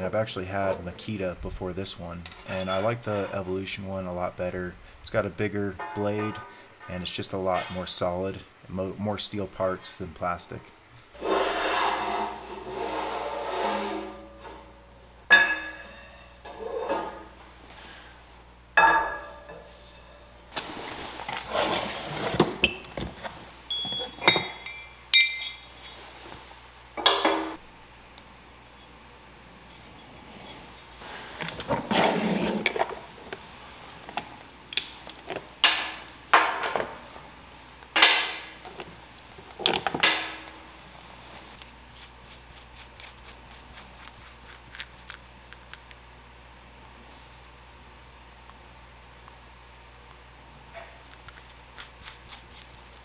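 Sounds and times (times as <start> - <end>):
metal pins clinking: 23.7 - 26.1.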